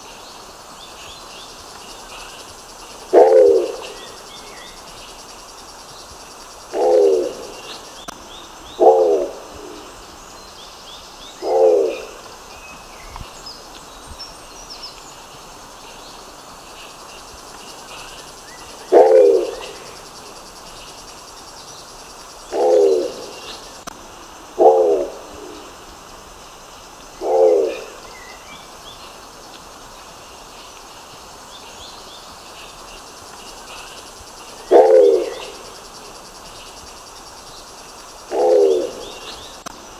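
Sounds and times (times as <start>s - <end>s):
pigeon giving low calls: 3.1s - 4.0s, 6.7s - 7.6s, 8.8s - 9.8s, 11.4s - 12.2s, 18.9s - 19.7s, 22.5s - 23.4s, 24.6s - 25.6s, 27.2s - 27.9s, 34.7s - 35.6s, 38.3s - 39.2s.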